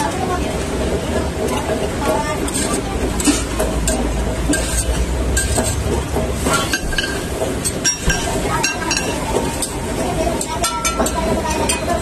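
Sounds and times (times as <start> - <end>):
metal spatula scraping griddle: 2.4 - 3.5, 4.5 - 5.8.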